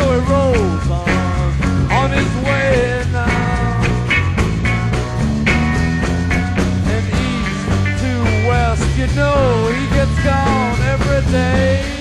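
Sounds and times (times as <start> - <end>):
bass guitar: 0.0 - 12.0
drums: 0.0 - 12.0
electric lead guitar bending notes: 0.0 - 12.0.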